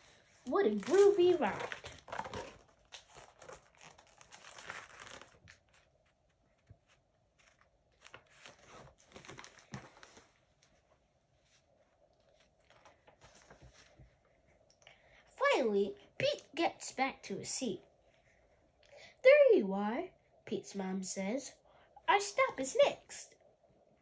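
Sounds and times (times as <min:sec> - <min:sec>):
paper pages turning: 0:00.0 - 0:10.7, 0:12.2 - 0:14.1.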